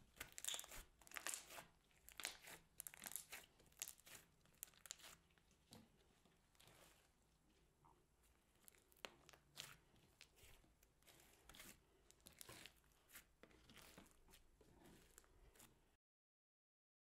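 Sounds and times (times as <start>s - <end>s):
slime squelching and popping: 0.0s - 5.4s.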